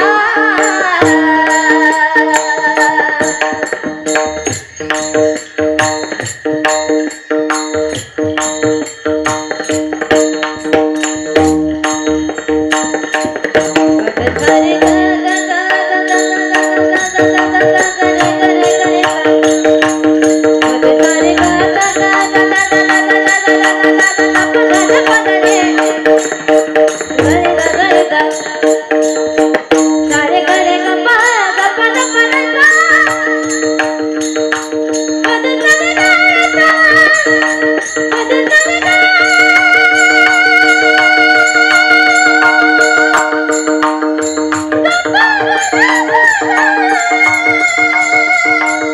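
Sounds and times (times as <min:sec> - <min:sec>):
hand cymbals struck rhythmically: 0:00.0 - 0:48.9
woman singing into a microphone: 0:00.0 - 0:48.9
sustained held notes: 0:03.9 - 0:28.7.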